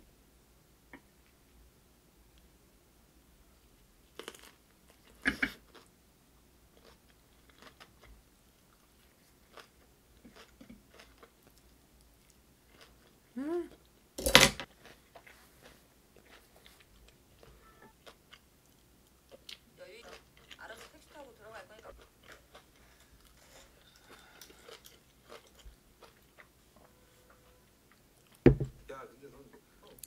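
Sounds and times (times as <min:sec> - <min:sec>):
soft chewing clicks: 0:06.7 - 0:14.0, 0:14.7 - 0:26.8.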